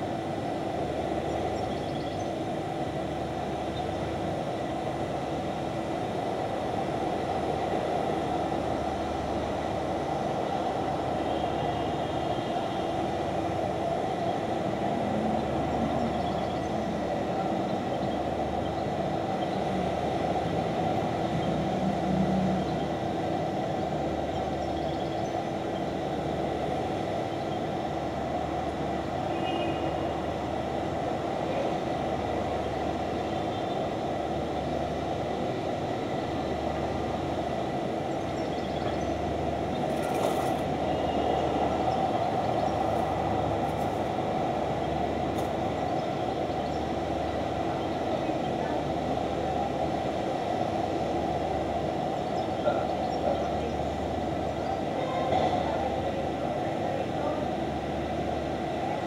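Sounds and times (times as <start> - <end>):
city rumble with hum: 0.0 - 59.0.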